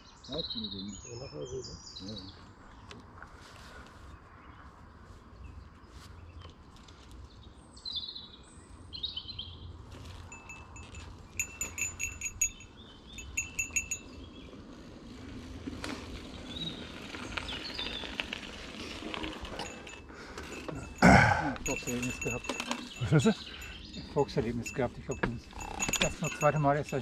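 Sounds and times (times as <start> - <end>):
bicycle bell ringing: 10.2 - 14.4, 19.3 - 27.0
bike tyres crunching on dirt: 13.1 - 27.0
bird calls: 16.2 - 27.0.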